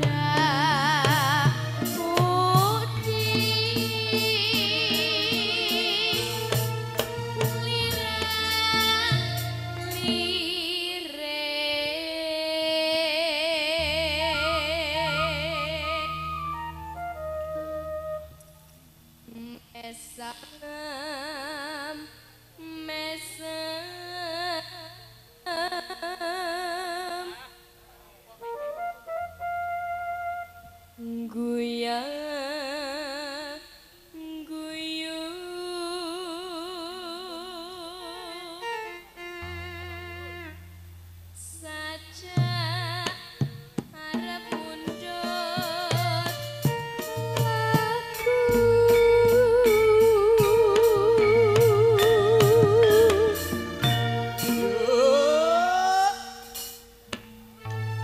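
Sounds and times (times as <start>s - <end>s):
woman singing with vibrato: 0.0s - 18.3s, 19.3s - 27.6s, 30.7s - 40.0s, 41.4s - 57.0s
gamelan instruments: 46.7s - 56.4s.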